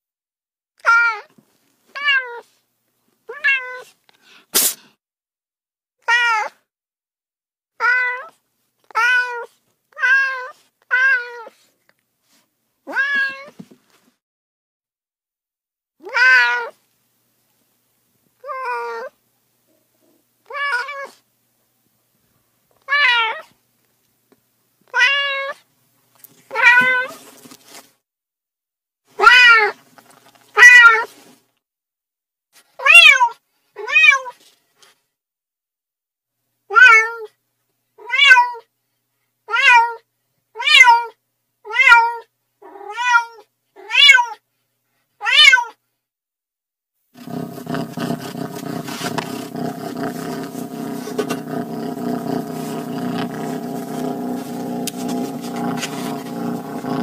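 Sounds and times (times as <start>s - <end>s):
cat meowing: 3.3s - 3.9s, 7.8s - 8.3s, 8.9s - 11.5s, 12.9s - 13.6s, 16.0s - 16.8s, 20.5s - 21.2s, 22.9s - 23.5s, 24.9s - 25.6s, 26.5s - 27.2s, 29.2s - 29.8s, 38.0s - 38.6s, 39.5s - 40.0s, 40.6s - 44.4s, 45.2s - 45.8s.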